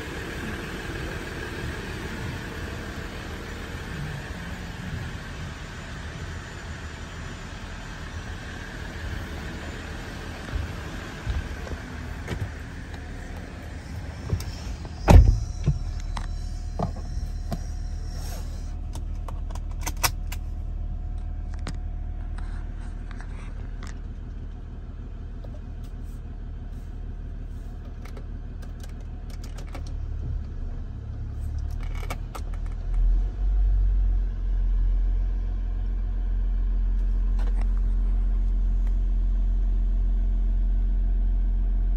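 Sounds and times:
diesel engine idling: 0.0 - 41.9
loud thump: 14.2 - 16.0
clicks and rattles: 27.9 - 30.0.

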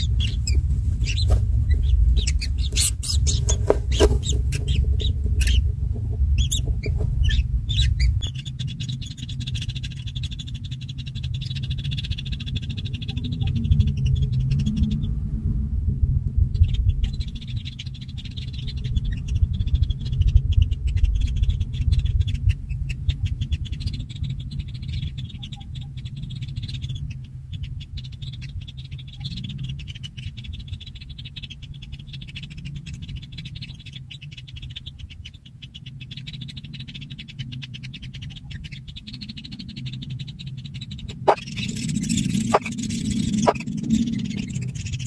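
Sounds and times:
rapid pulsed animal calling: 0.0 - 15.0, 36.0 - 45.0
low rumble: 0.0 - 32.0, 36.4 - 45.0.

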